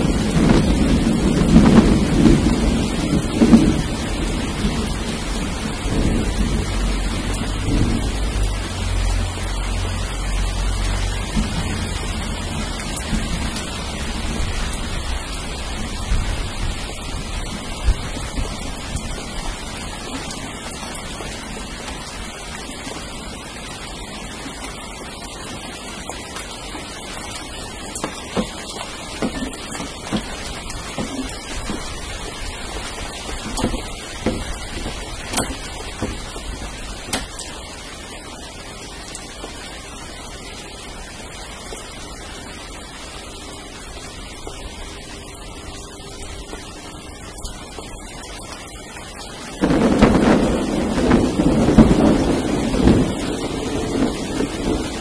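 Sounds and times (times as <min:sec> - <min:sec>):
thunder rumbling: 0:00.0 - 0:22.7, 0:27.0 - 0:37.8, 0:49.5 - 0:55.0
rain falling: 0:00.0 - 0:55.0
water drips tapping: 0:27.2 - 0:37.6.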